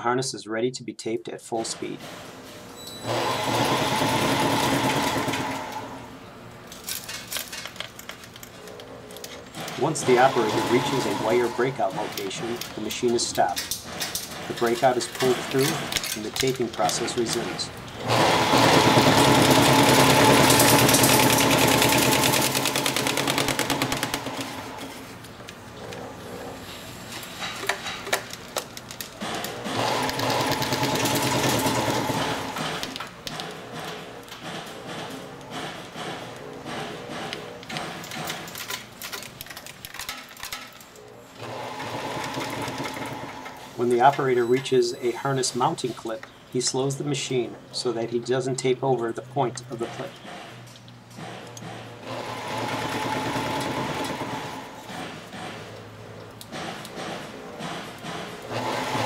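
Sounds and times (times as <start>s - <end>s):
taping machine whirring: 2.8s - 6.2s, 6.8s - 40.1s, 41.4s - 44.7s, 51.2s - 55.6s, 57.6s - 59.0s
clicks and rattles: 12.1s - 17.5s, 36.0s - 41.0s.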